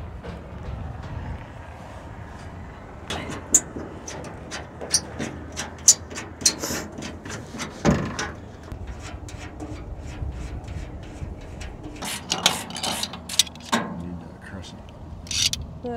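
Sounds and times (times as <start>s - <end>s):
wrench clicking on metal fittings: 15.3s - 15.6s.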